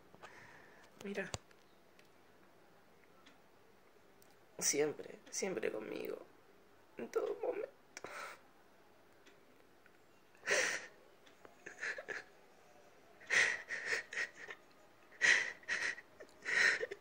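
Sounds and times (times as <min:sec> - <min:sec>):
man sobbing: 0:11.6 - 0:12.3, 0:13.2 - 0:17.0.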